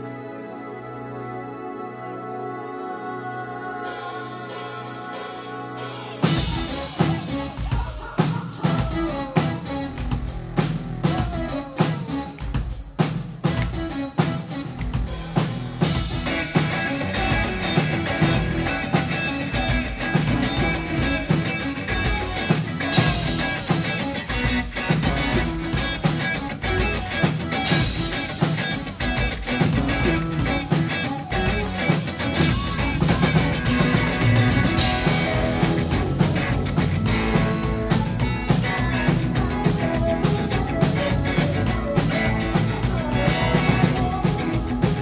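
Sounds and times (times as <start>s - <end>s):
live pop-rock band playing: 3.8s - 45.0s
electric guitar strumming chords: 13.5s - 45.0s.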